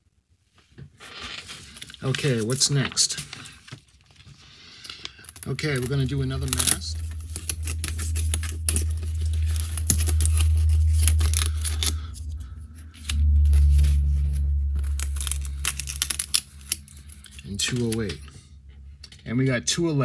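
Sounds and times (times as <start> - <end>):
low rumble: 5.4 - 20.0.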